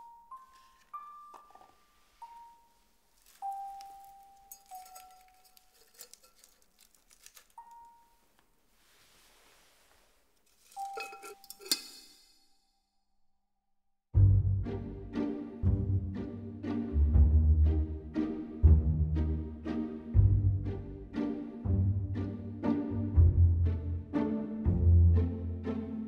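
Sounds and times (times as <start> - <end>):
faint rustling: 0.4 - 11.7
sharp clinks: 10.6 - 12.7.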